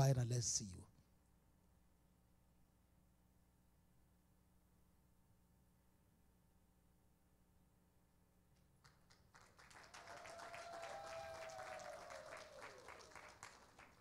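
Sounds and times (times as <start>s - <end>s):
crowd applauding: 8.8s - 14.0s
person cheering: 10.1s - 13.1s.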